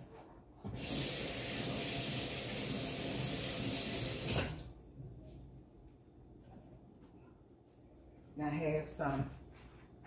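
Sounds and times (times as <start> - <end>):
tap water running into colander: 0.7 - 4.7.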